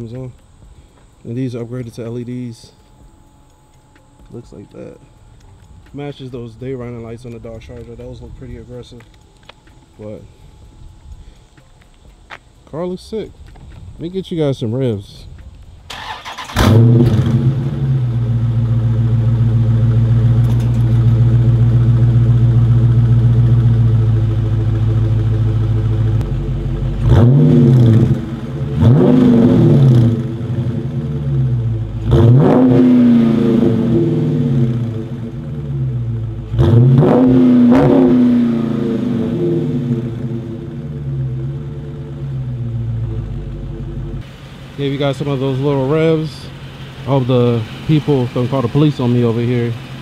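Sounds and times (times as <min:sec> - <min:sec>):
car engine idling: 0:15.6 - 0:50.0
car engine starting: 0:15.8 - 0:50.0
engine revving: 0:15.9 - 0:50.0.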